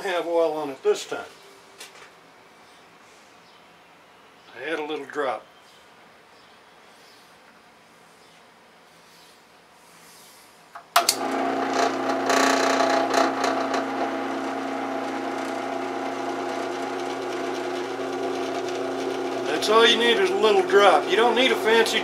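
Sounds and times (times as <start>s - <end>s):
drill press motor humming: 11.0s - 22.0s
drill bit cutting metal: 11.1s - 22.0s.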